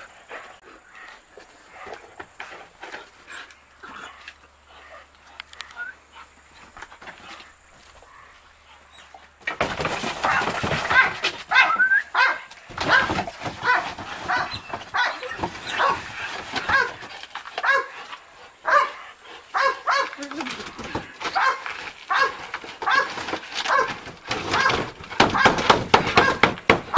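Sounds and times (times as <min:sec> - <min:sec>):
dog barking: 0:10.3 - 0:16.0, 0:16.7 - 0:17.0, 0:17.6 - 0:18.0, 0:18.6 - 0:20.2, 0:21.4 - 0:23.9, 0:26.2 - 0:26.4.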